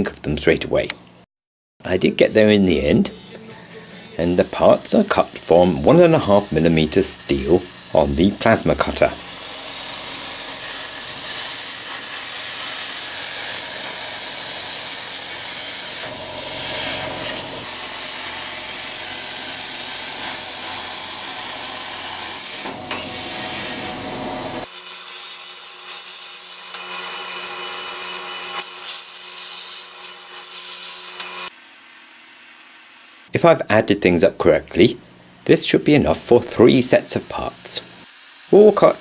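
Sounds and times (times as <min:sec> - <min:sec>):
plasma cutter hissing: 0:04.1 - 0:24.7.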